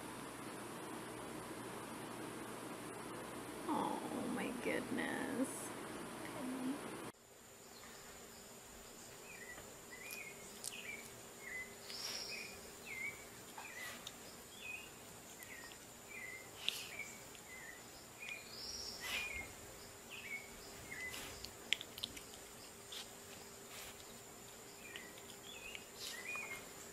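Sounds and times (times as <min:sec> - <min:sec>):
faint bird chirping: 0:07.5 - 0:26.9.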